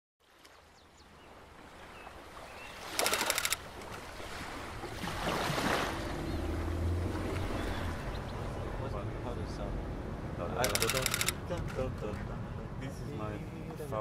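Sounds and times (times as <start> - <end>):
water and air noise: 0.2 - 14.0
rattle of clicks: 3.0 - 3.6, 10.6 - 11.8
low engine-like hum: 5.8 - 11.4.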